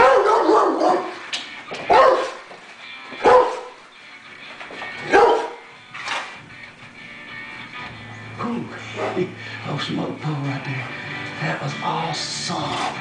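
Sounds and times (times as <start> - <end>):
dog barking loudly: 0.0 - 1.2, 1.9 - 2.5, 3.2 - 3.8, 5.0 - 5.7.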